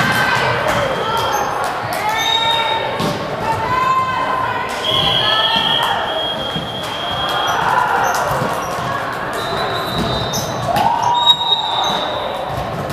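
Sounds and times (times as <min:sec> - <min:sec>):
distant voices: 0:00.0 - 0:12.9
volleyballs hit and bouncing: 0:00.0 - 0:12.9
shoe squeaks: 0:04.8 - 0:12.5.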